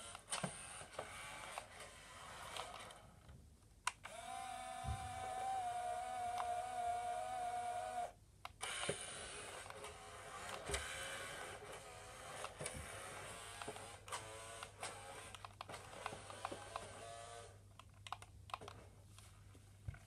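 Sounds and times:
toy car motor whirring: 0:04.1 - 0:17.5
scattered clicks: 0:13.6 - 0:16.9, 0:17.7 - 0:18.8.

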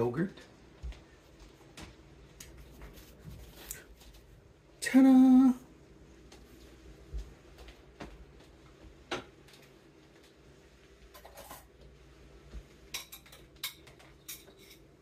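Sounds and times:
dishes and utensils clinking: 0:11.1 - 0:11.8, 0:12.9 - 0:15.0.

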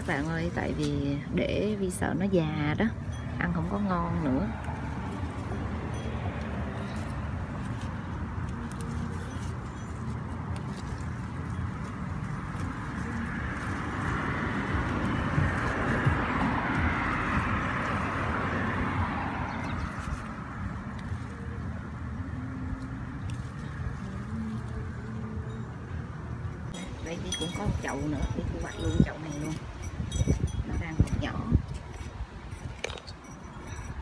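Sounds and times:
leaves and stems rustling and snapping: 0:00.0 - 0:02.0, 0:03.5 - 0:25.3
steady outdoor rumble: 0:00.0 - 0:34.0.

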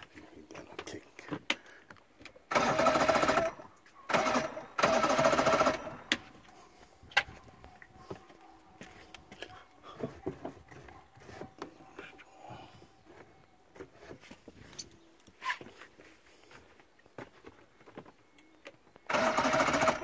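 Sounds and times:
electric starter cranking engine: 0:02.5 - 0:06.2, 0:19.1 - 0:20.0.

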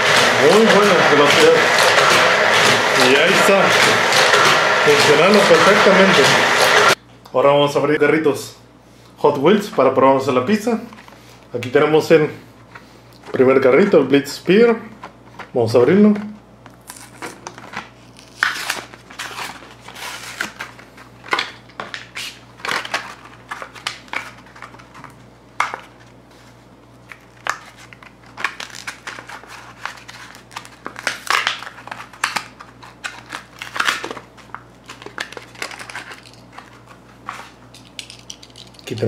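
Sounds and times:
cardboard ripping: 0:16.8 - 0:21.4
plastic crinkling and crackling: 0:27.0 - 0:39.0.

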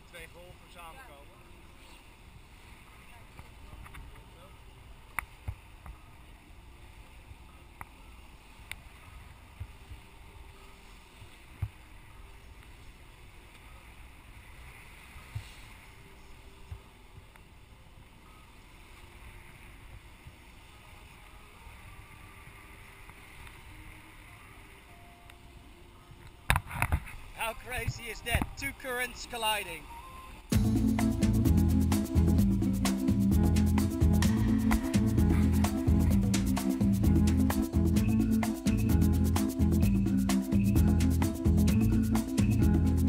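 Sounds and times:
water splashing along hull: 0:00.0 - 0:28.8.

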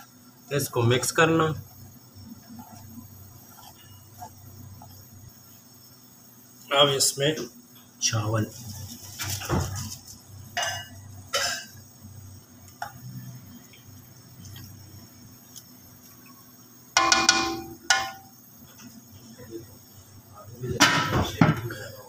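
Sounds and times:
low steady hum: 0:10.2 - 0:20.6
spatula knocking and scraping pot: 0:17.0 - 0:18.3
steel bowl clinking on pot: 0:17.0 - 0:18.3
metal clanging on pot: 0:17.0 - 0:18.4.

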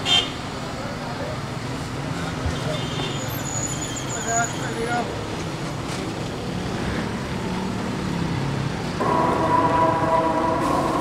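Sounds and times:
street traffic: 0:00.0 - 0:11.0
loud multi-pitch horn: 0:09.0 - 0:11.0.

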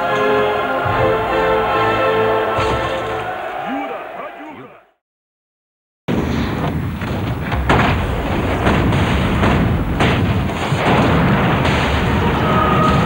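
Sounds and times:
cannon fire and explosions: 0:06.1 - 0:13.0.

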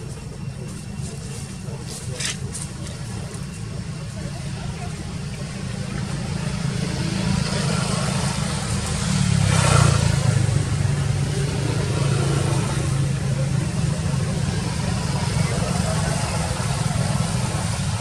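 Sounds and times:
vehicle engine passing by: 0:04.7 - 0:18.0.

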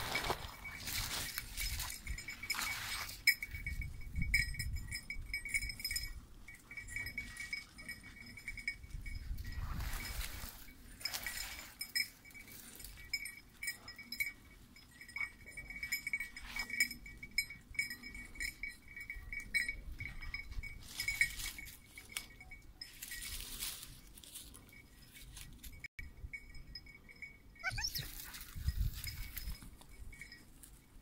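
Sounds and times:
rustling scrub: 0:00.0 - 0:03.4, 0:09.4 - 0:13.0, 0:22.9 - 0:25.7
dog bell collar jingling: 0:00.0 - 0:31.0.

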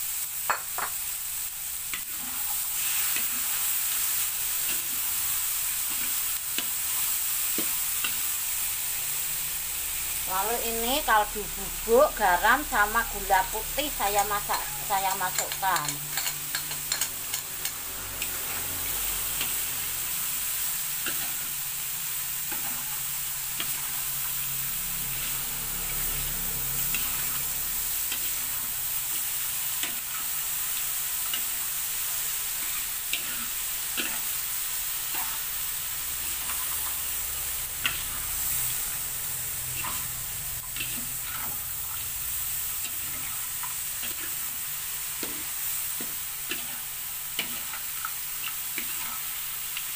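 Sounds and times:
food sizzling in a wok: 0:00.0 - 0:49.9
metal spatula scraping a pan: 0:14.2 - 0:19.6, 0:32.2 - 0:34.4, 0:36.1 - 0:42.0, 0:48.4 - 0:49.4.

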